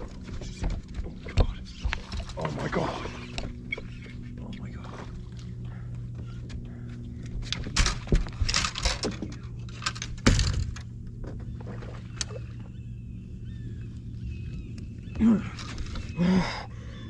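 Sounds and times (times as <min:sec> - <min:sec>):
steady low hum: 0:00.0 - 0:17.0
fishing gear knocking and clattering: 0:07.2 - 0:11.5.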